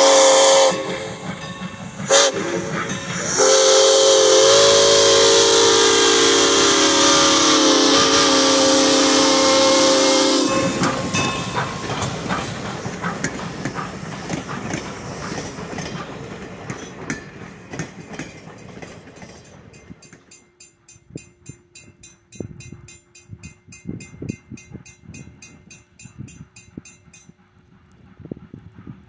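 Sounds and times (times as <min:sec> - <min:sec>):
steam whistle blast: 0:00.0 - 0:01.2, 0:02.1 - 0:11.1
hissing steam: 0:00.0 - 0:19.9
train wheels clacking on rails: 0:00.0 - 0:29.0.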